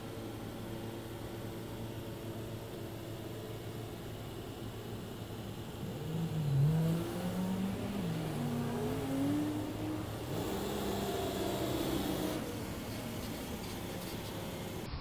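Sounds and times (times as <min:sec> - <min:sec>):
car engine accelerating: 0:03.9 - 0:14.9.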